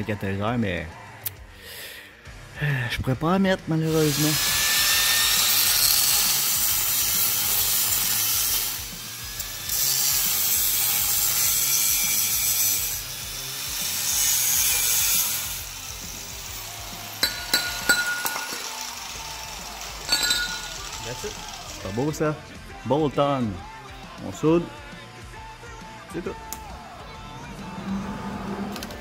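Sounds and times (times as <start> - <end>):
angle grinder cutting metal pipe: 3.8 - 22.1
metallic clinks: 17.2 - 18.9, 20.0 - 21.0.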